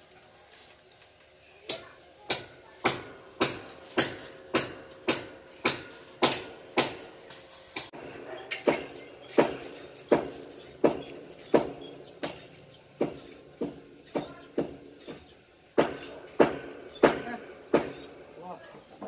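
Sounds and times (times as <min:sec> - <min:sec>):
hammer blows on metal: 0:08.5 - 0:18.4.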